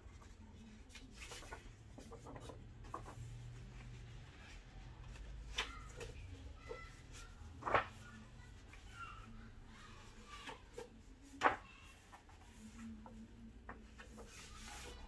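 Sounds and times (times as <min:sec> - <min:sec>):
paper pages rustling: 0:00.1 - 0:09.3
page flapping: 0:07.4 - 0:08.1.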